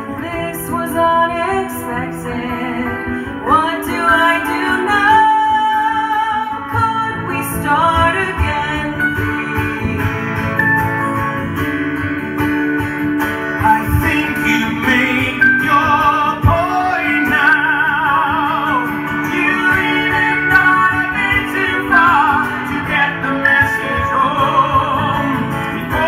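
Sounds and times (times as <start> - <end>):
woman singing: 0.0 - 10.3, 13.6 - 26.0
acoustic guitar strummed: 0.0 - 26.0
plucked string instrument: 0.0 - 26.0.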